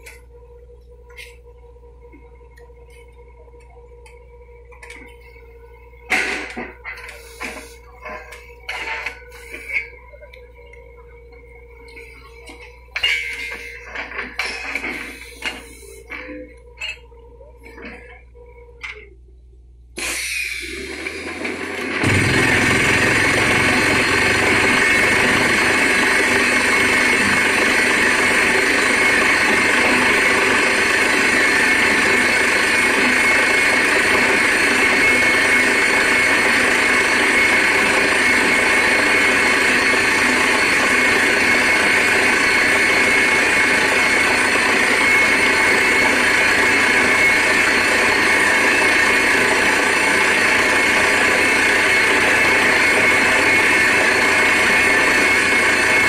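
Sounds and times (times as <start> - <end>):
compressed air blasting: 20.0 - 21.4
drilling rig engine din: 20.0 - 56.0.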